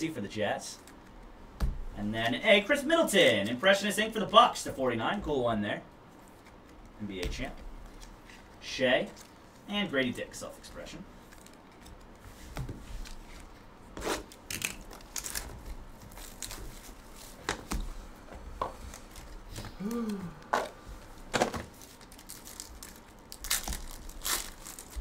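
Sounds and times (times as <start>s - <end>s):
foil wrapper crinkling and tearing: 14.3s - 16.9s, 21.7s - 25.0s.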